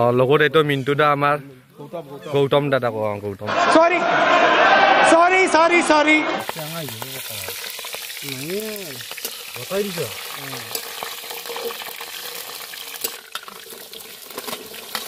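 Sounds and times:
hot oil sizzling in a wok: 6.4s - 15.0s
person speaking: 8.2s - 10.7s
metal spatula clinking on pan: 9.1s - 9.5s, 10.7s - 11.0s.

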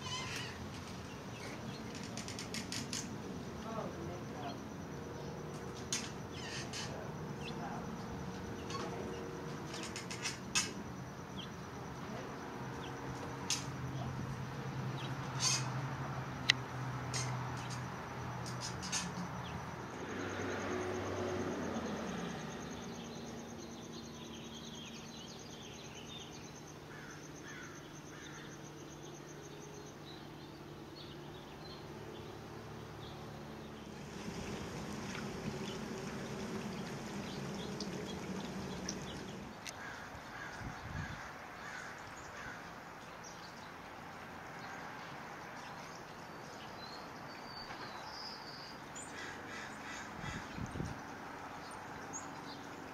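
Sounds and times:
short bird calls: 15.4s - 15.7s
fountain water splashing: 33.8s - 40.3s.

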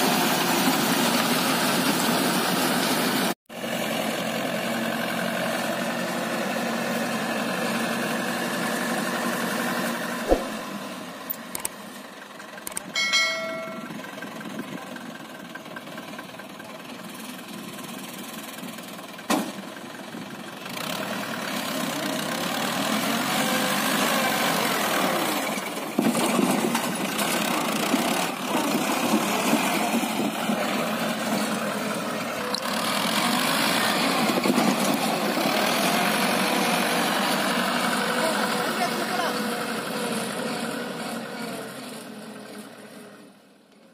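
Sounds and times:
tractor diesel engine running: 0.0s - 43.8s
sharp knocks: 10.3s - 10.7s
brief ringing tone: 13.0s - 14.0s.

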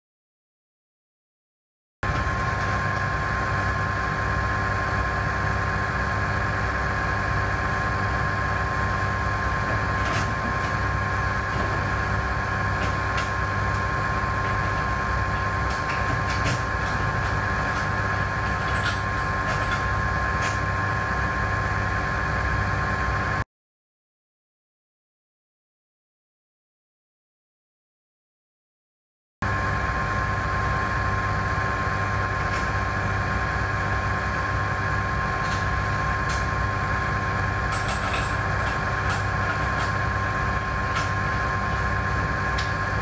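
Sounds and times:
blower humming with thin whine: 2.1s - 23.4s, 29.5s - 43.0s.

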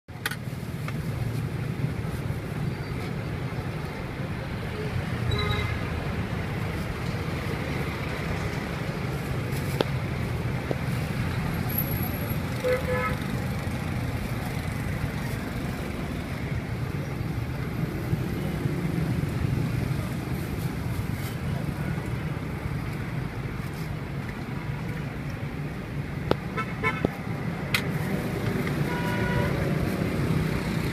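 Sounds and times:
street traffic rumble: 0.1s - 30.9s
vehicle horn beeps: 5.3s - 5.8s, 28.9s - 29.6s.

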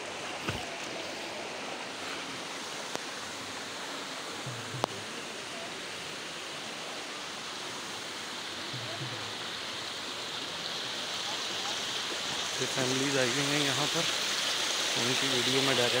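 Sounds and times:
stream water running over stones: 0.0s - 16.0s.

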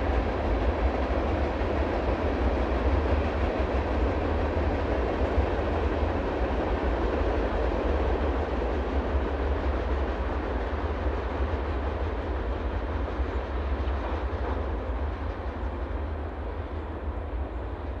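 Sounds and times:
train wheels rolling on rails: 0.0s - 18.0s.

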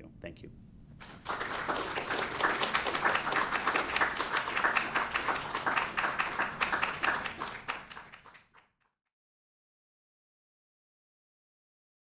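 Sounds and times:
audience applauding: 1.0s - 8.8s.

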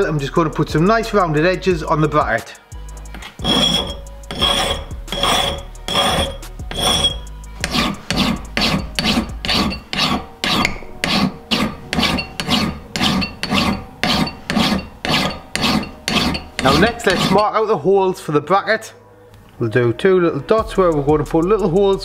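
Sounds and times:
hand file rasping on steel: 3.2s - 17.6s.

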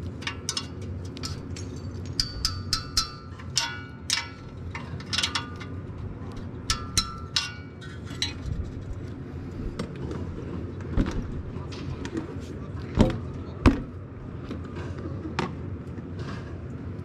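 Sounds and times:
spanner clinking on metal bolts: 0.0s - 8.9s.

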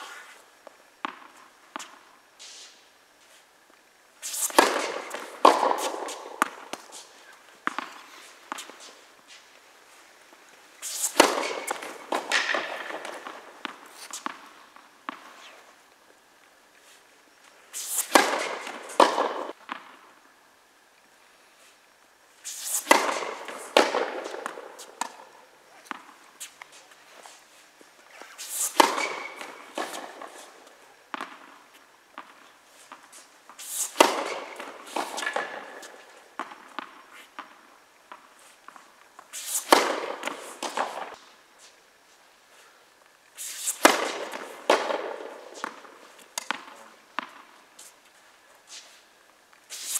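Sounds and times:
tennis balls bouncing on hard court: 1.0s - 2.0s, 4.2s - 9.4s, 10.8s - 15.5s, 17.8s - 20.0s, 22.6s - 26.8s, 28.2s - 38.8s, 39.4s - 41.2s, 43.5s - 47.9s
tennis balls struck by rackets: 1.0s - 2.5s, 4.2s - 9.4s, 10.8s - 15.6s, 17.8s - 20.0s, 22.4s - 26.9s, 28.1s - 41.2s, 43.4s - 47.8s.

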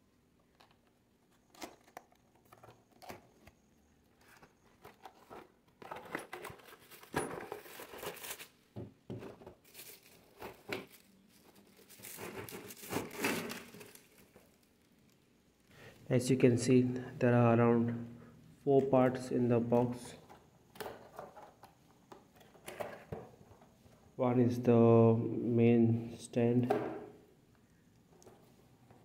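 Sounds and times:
cardboard rustling: 9.2s - 15.2s
plastic crinkling: 9.6s - 15.7s.

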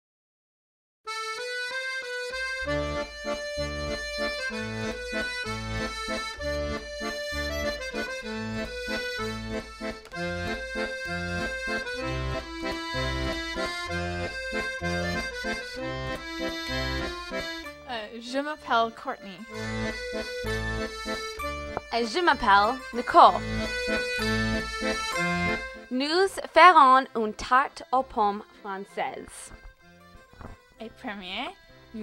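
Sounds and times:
accordion music: 1.1s - 32.0s
bouncing bass line: 2.6s - 18.1s, 19.4s - 26.1s.

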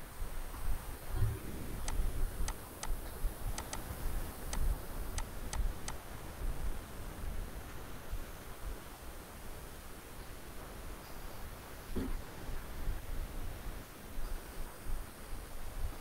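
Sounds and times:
computer mouse clicking: 1.8s - 6.0s.

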